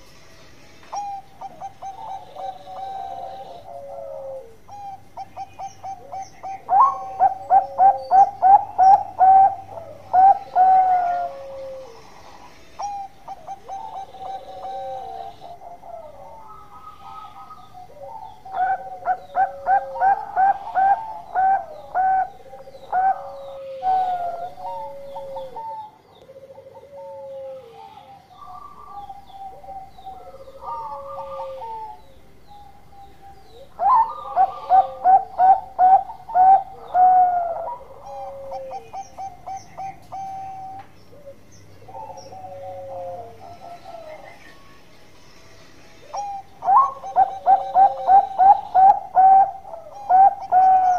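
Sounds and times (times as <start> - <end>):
dove cooing: 0.9 - 44.7, 46.0 - 50.9.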